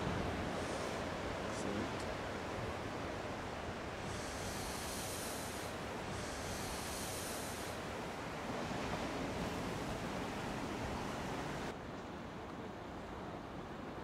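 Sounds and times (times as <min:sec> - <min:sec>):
waves breaking: 0:00.0 - 0:11.7.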